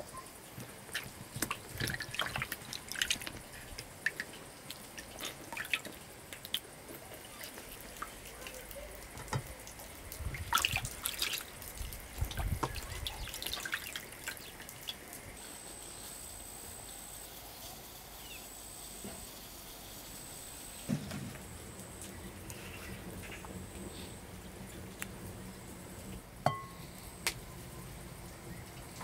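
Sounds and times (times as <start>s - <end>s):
water dripping and splashing: 0.3s - 15.4s, 20.8s - 26.4s.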